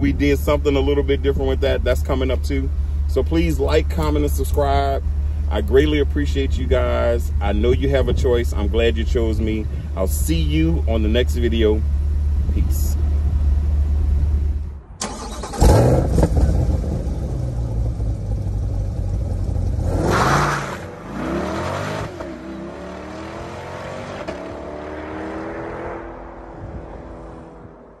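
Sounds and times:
car engine starting and idling: 0.0 - 27.8
car revving and accelerating away: 15.0 - 28.0.

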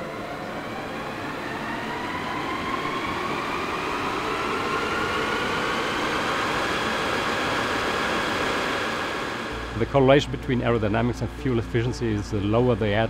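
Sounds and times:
rising whine: 0.0 - 13.0
rush of air: 2.4 - 9.9.

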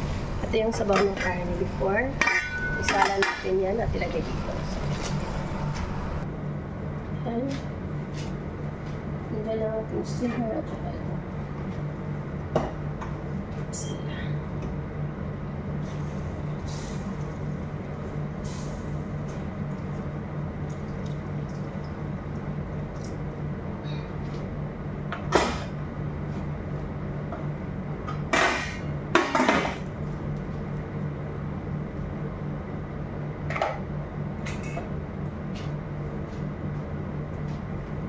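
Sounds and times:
steady low hum: 0.0 - 38.0
pots and utensil clattering: 2.2 - 3.5.

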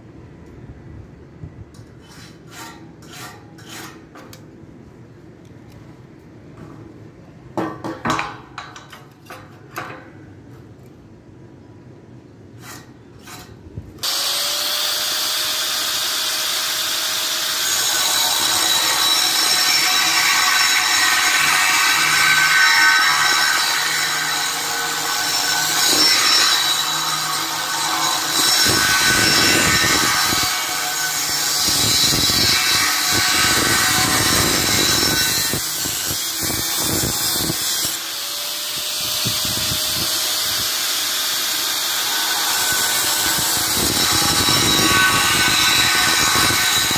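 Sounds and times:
angle grinder cutting steel: 12.6 - 46.9.

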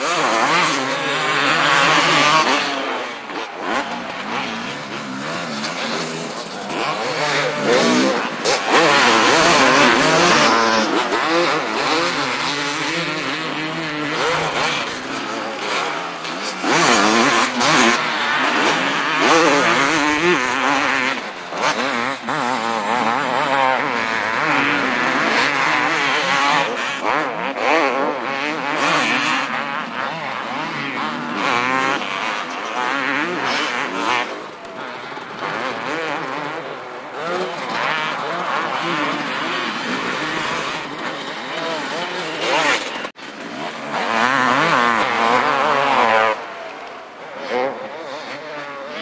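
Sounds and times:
motocross bikes revving: 0.0 - 49.0.

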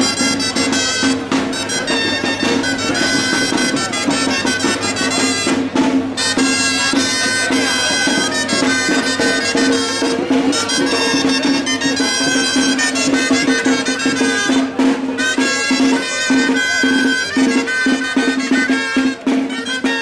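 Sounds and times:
band music with wind instruments: 0.0 - 20.0
drum: 0.0 - 20.0.

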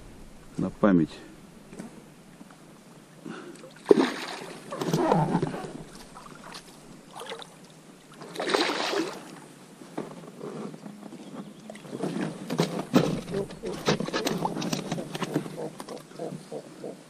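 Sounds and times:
water splashing beside boat: 3.0 - 15.4.

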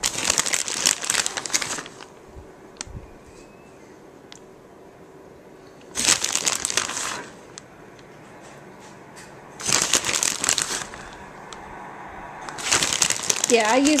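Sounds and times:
plastic bag crinkling: 0.0 - 2.2, 5.9 - 7.6, 9.6 - 11.5, 12.5 - 14.0.

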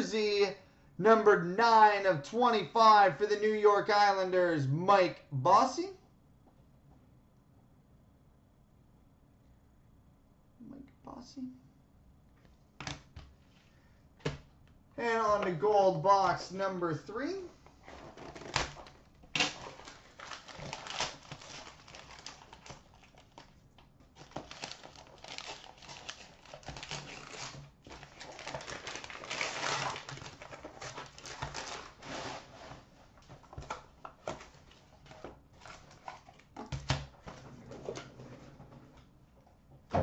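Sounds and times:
wrapping paper tearing and crinkling: 18.2 - 33.3.

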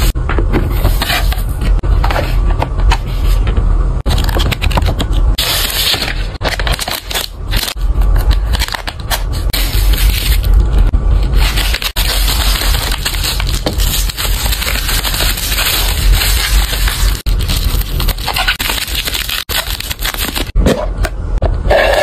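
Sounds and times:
bubble wrap crinkling: 11.3 - 20.6
plastic packaging crinkling: 11.3 - 20.6.

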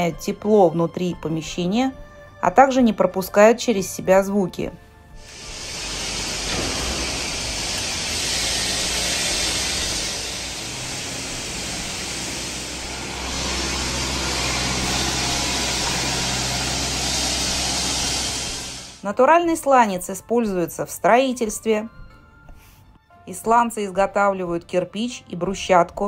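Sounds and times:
low machine hum: 5.2 - 19.0
machine hiss: 5.2 - 19.0.

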